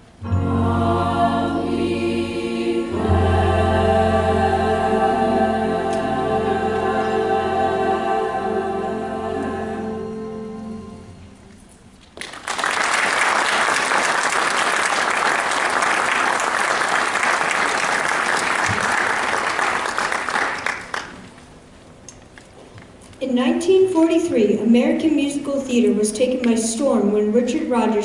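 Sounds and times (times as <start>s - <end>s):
boys' choir holding a chord: 0.2s - 11.4s
audience applauding: 12.2s - 21.3s.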